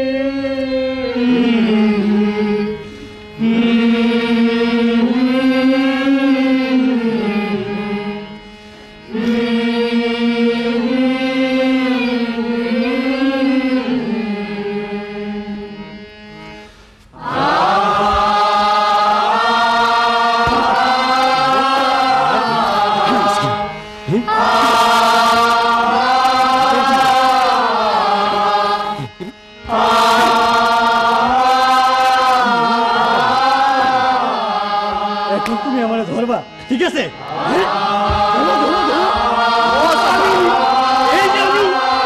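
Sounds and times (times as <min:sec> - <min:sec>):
chant-like singing: 0:00.0 - 0:08.4, 0:09.1 - 0:16.0, 0:17.1 - 0:36.2, 0:37.2 - 0:42.0
low drone: 0:37.5 - 0:40.8.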